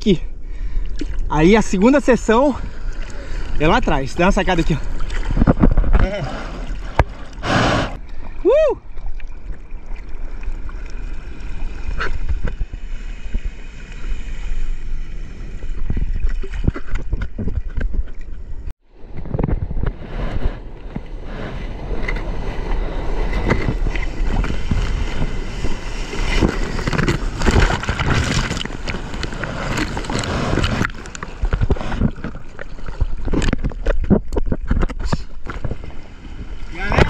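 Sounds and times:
sea water rushing and splashing: 0.6 - 17.0, 20.0 - 37.0
wind buffeting microphone: 15.6 - 34.8.

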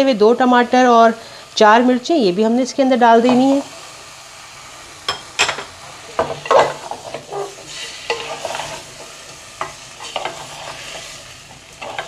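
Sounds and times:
vegetables sizzling in oil: 0.0 - 12.0
spoon scraping and knocking pot: 9.6 - 11.1.

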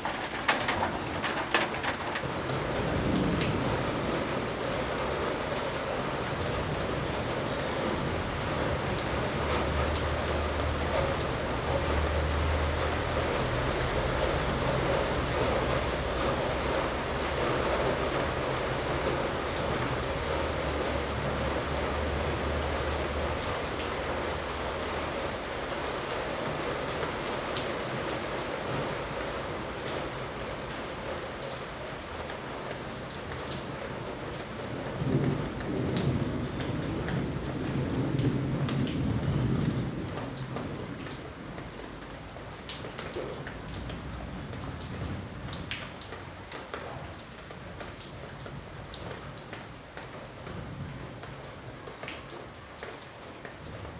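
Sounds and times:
low thunder rumbling: 0.0 - 7.4, 34.8 - 41.0
raindrops ticking close by: 0.0 - 53.9
steady rain falling: 0.0 - 53.9.

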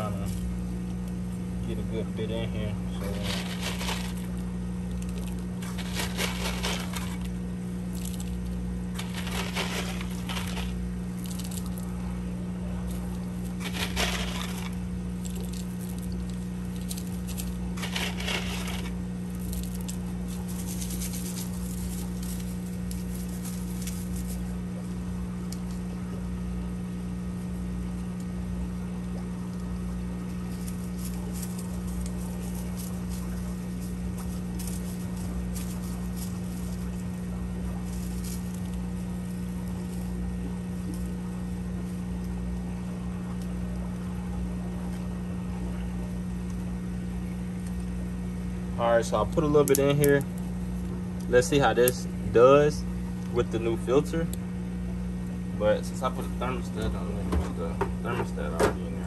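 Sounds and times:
steady low hum: 0.0 - 59.0
small rocks rattling: 3.0 - 11.8, 12.9 - 24.4.

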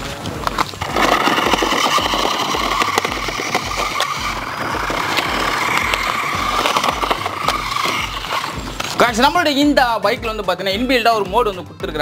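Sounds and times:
tyres clicking on gravel: 0.2 - 9.2
toy motorcycle motor whine: 0.8 - 9.0.

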